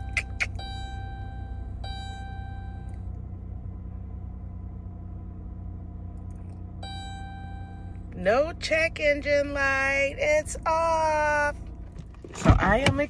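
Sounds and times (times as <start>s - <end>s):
high ringing tone: 0.0s - 3.1s, 6.8s - 8.2s
car engine idling: 0.0s - 13.0s.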